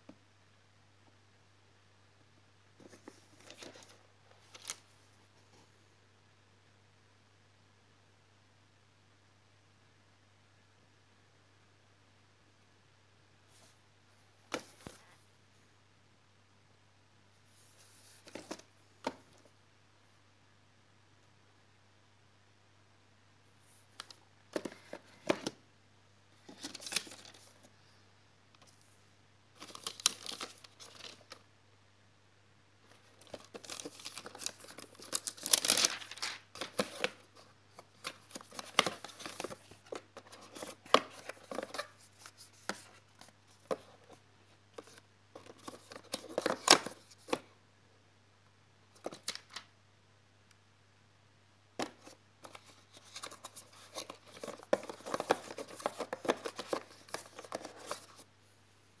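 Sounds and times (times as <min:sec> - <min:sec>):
paper leaflets rustling: 0:32.8 - 0:44.2, 0:51.8 - 0:58.2.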